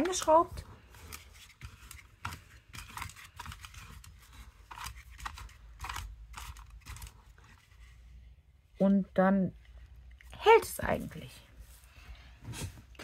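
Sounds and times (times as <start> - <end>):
plastic parts clicking and scraping: 0.0 - 7.9.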